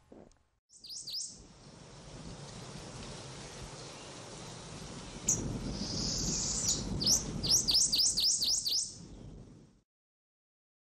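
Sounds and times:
bird calling: 0.8s - 1.3s, 5.2s - 9.0s.

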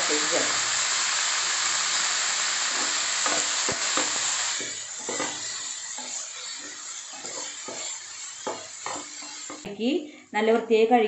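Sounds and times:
rice sizzling in a pan: 0.0s - 9.7s
wooden spatula scraping pan: 2.8s - 9.7s.

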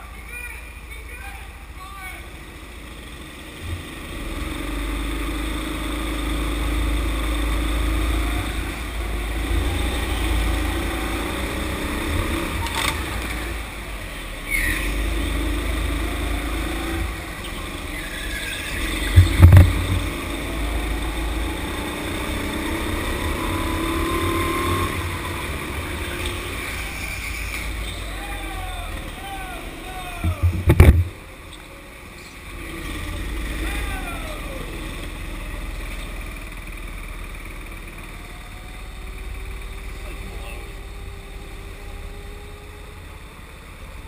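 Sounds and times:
go-kart engine drone: 0.0s - 44.0s
loud knocks: 19.1s - 20.2s, 30.2s - 31.2s.

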